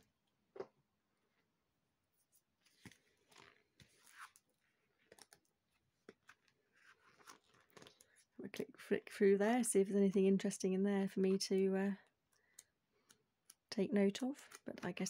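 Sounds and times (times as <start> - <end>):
book pages turning: 2.3 - 8.3.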